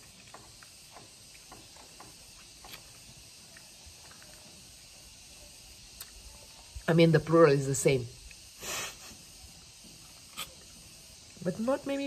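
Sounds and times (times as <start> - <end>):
steady high hiss: 0.0 - 12.0
wet mouth eating sounds: 10.1 - 10.8.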